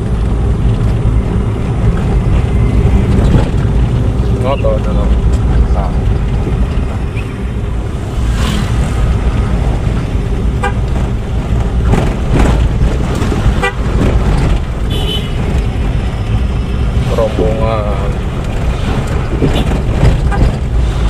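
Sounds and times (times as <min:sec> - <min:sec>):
vehicle engine running: 0:00.0 - 0:21.0
horn toots: 0:10.5 - 0:10.9, 0:14.8 - 0:15.4.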